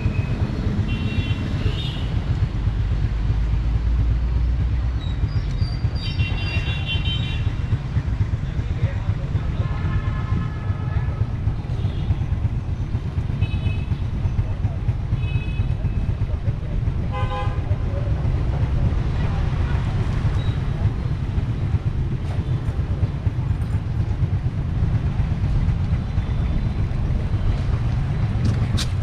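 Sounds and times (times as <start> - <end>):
street traffic rumble: 0.0 - 29.0
vehicle horn toots: 17.1 - 17.7.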